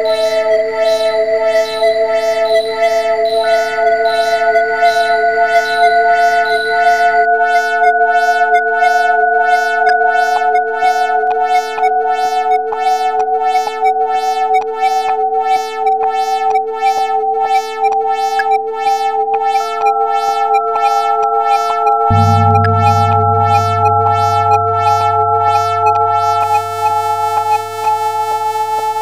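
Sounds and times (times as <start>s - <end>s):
short keyboard notes pulsing: 19.3s - 28.4s
held electronic chord: 19.3s - 29.0s.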